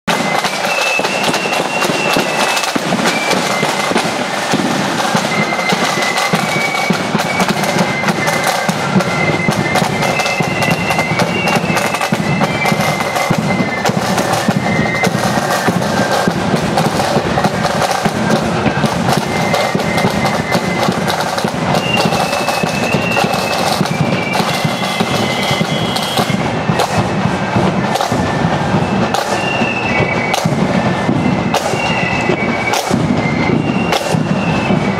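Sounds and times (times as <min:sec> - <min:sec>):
flute melody: 0:00.1 - 0:34.9
side drums rattling: 0:00.1 - 0:34.9.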